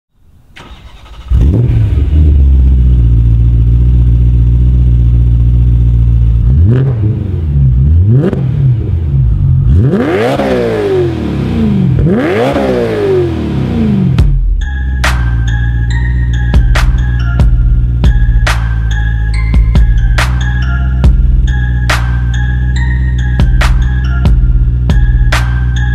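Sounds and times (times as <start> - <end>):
car engine idling and revving: 0.6 - 25.9.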